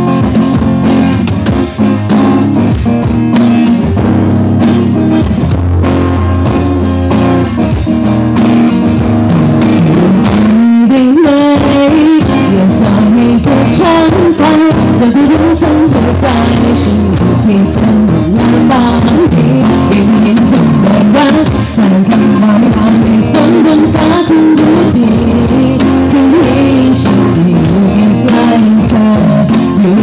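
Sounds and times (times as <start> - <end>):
drum kit: 0.0 - 30.0
electric guitar: 0.0 - 30.0
person singing: 9.9 - 30.0.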